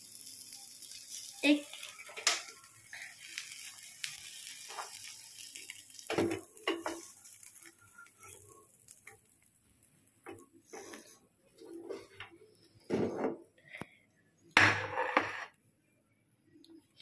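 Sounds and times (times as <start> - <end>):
oil sizzling faintly: 0.0 - 13.8
spatula scraping frying pan: 10.7 - 12.2, 14.8 - 15.6.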